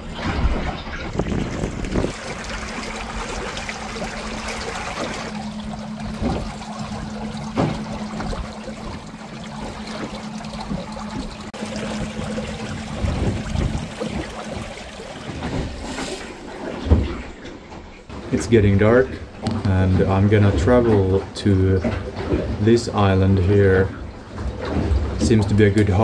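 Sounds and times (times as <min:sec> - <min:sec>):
water splashing along boat hull: 0:00.0 - 0:26.0
steady low hum: 0:01.8 - 0:21.9.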